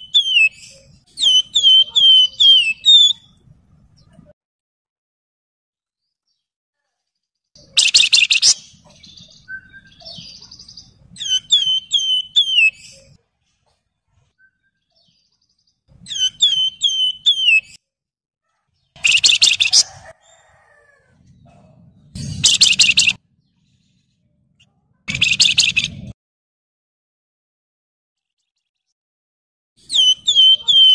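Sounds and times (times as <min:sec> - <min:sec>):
bird harsh buzzy chatters: 0:00.2 - 0:03.2
bird high whistled notes: 0:01.2 - 0:03.3, 0:11.2 - 0:12.8, 0:16.1 - 0:17.7, 0:29.9 - 0:30.9.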